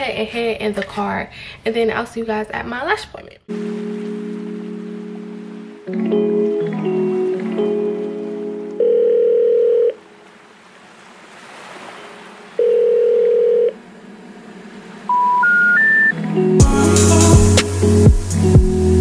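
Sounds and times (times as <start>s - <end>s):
telephone ringing tone: 8.8s - 10.0s, 12.6s - 13.8s
short rising beeps: 15.1s - 16.2s.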